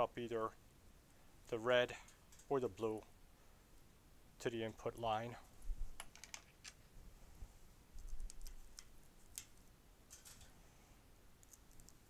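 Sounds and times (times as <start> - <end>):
clicks and rustles of wires: 1.9 - 2.7, 5.4 - 6.8, 8.0 - 10.6, 11.4 - 12.0.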